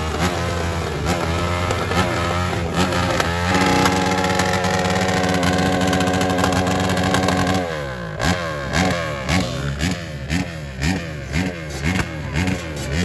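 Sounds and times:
scooter engine revving: 0:00.0 - 0:13.0.

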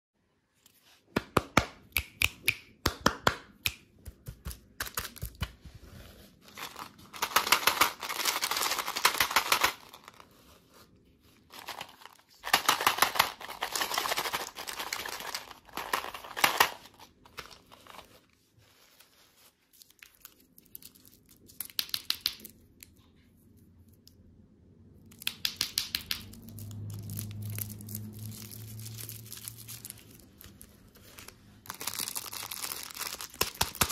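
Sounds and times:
taps on candy tubes: 0:01.1 - 0:05.6, 0:21.6 - 0:22.6, 0:25.1 - 0:26.6, 0:33.2 - 0:33.9
plastic wrappers crinkling: 0:06.4 - 0:22.0, 0:26.3 - 0:33.9.

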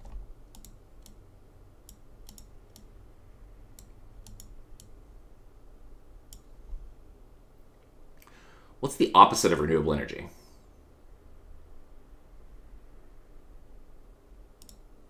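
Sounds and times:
computer mouse clicks: 0:00.0 - 0:01.2, 0:01.8 - 0:02.9, 0:03.7 - 0:05.0, 0:06.3 - 0:06.6, 0:14.6 - 0:14.9
low steady hum: 0:00.0 - 0:15.0.

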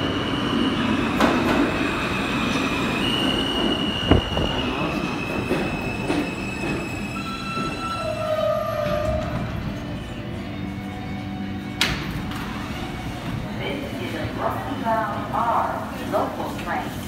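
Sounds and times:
subway train braking with squeal: 0:00.0 - 0:11.7.

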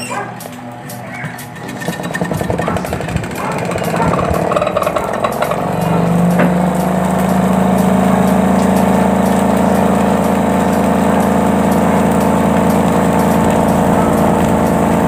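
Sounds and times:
spin dryer motor humming: 0:00.1 - 0:15.0.

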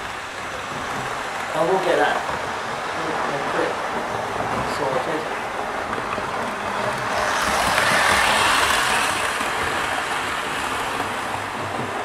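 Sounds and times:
train wheels rumbling on rails: 0:00.0 - 0:12.0
model train motor whirring: 0:07.0 - 0:10.8.

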